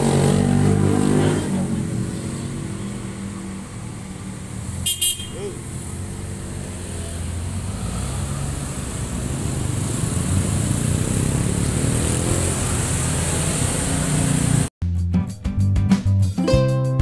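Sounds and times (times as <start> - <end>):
scooters and cars driving past: 0.0 - 14.7
engine speeding up: 5.6 - 14.7.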